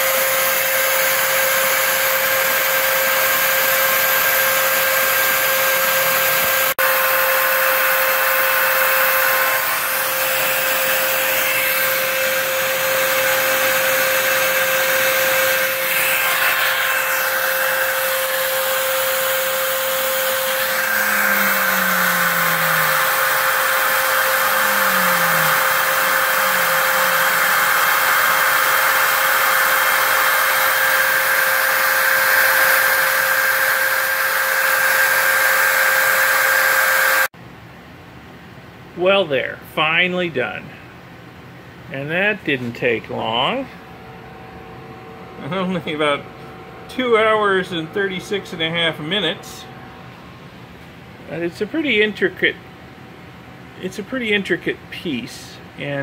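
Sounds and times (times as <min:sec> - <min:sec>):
router spindle high whine: 0:00.0 - 0:37.3, 0:45.2 - 0:50.3
shop vacuum rushing: 0:00.0 - 0:37.3.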